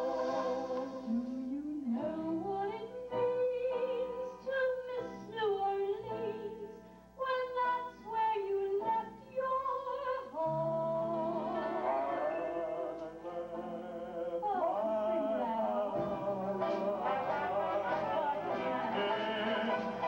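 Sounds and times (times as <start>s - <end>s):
banjo band playing: 16.0s - 20.0s.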